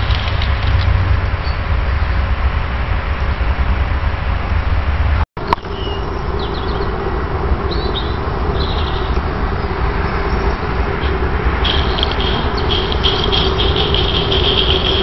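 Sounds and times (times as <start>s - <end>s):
small birds chirping: 5.4s - 15.0s
steam locomotive hissing: 10.8s - 15.0s.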